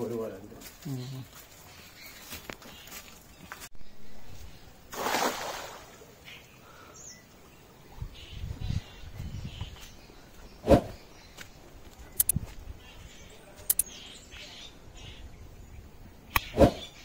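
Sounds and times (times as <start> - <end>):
net splashing into water: 4.9 - 6.0.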